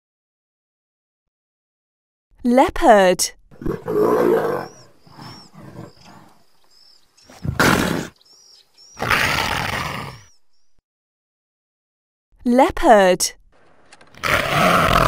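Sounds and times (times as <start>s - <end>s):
leopard snarling and growling: 3.5s - 8.2s, 8.8s - 10.3s, 14.2s - 15.0s
small birds chirping: 3.6s - 10.8s.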